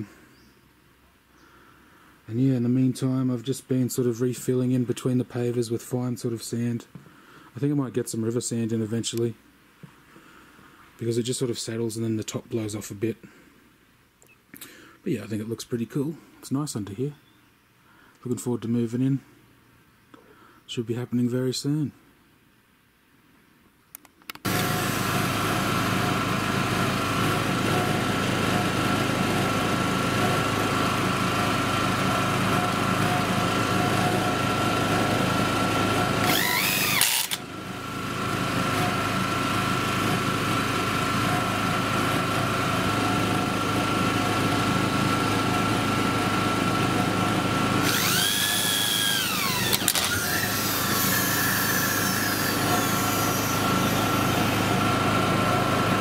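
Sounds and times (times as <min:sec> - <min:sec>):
small generator running: 0:24.4 - 0:56.0
power drill driving screws: 0:35.8 - 0:37.4, 0:47.8 - 0:54.8.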